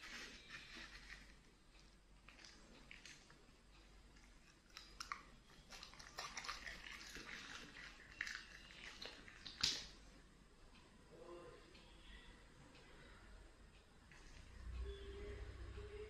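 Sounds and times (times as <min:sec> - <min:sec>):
dog chewing crunchy food: 0:04.2 - 0:09.8
wet mouth clicks: 0:04.5 - 0:09.9.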